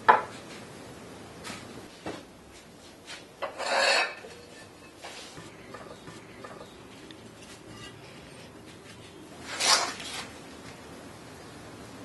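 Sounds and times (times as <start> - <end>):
gritty scrape: 3.4 - 5.4, 7.4 - 10.4.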